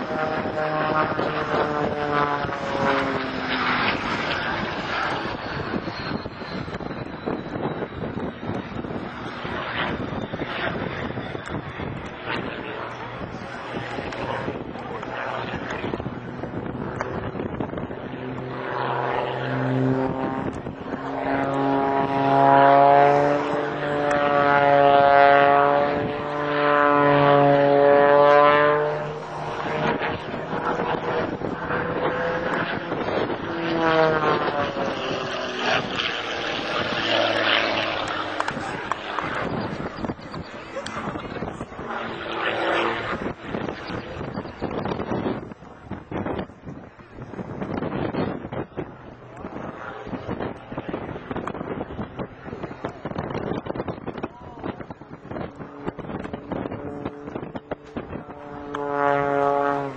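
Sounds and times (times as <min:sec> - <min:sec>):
propeller aircraft engine droning: 0:00.0 - 0:59.9
wind noise on microphone: 0:00.0 - 0:59.9.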